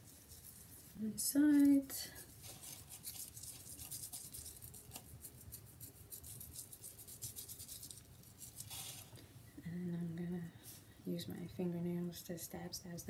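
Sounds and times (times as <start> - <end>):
fingers rubbing scalp through hair: 0.0 - 9.1.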